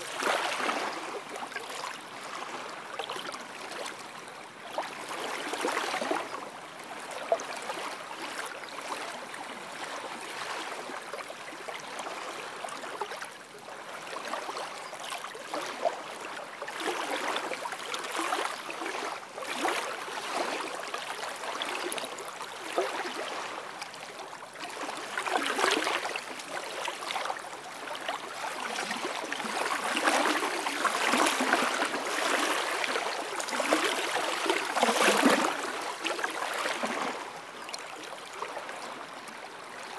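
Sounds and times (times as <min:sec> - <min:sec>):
small waves lapping on shore: 0:00.0 - 0:39.9.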